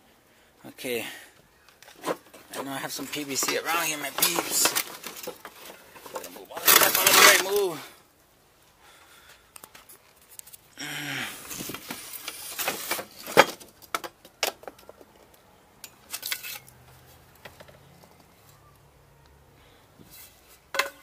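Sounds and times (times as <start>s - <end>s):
plastic pipes clattering: 1.7s - 7.7s, 11.4s - 15.4s, 20.1s - 21.0s.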